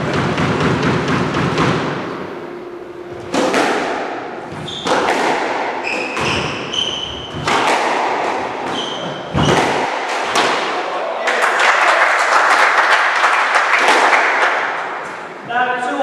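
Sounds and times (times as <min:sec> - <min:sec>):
squash ball hits ringing: 0:00.0 - 0:10.8
shoes squeaking on wooden floor: 0:04.5 - 0:05.2, 0:05.8 - 0:07.6, 0:08.5 - 0:09.8.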